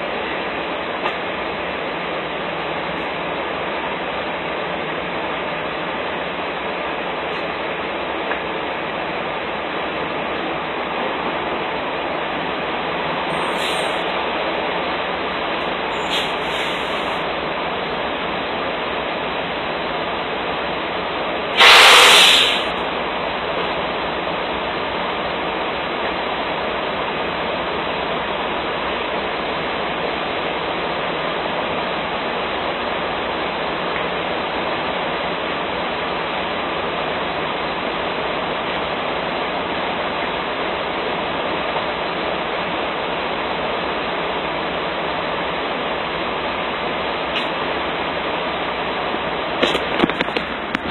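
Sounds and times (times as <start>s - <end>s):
loud short hiss: 13.3s - 14.1s, 16.0s - 17.2s, 21.6s - 22.8s.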